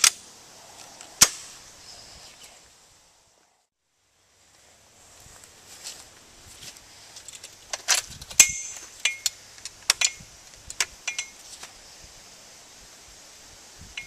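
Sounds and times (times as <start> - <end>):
metallic clicks of machine gun parts: 7.2 - 11.7.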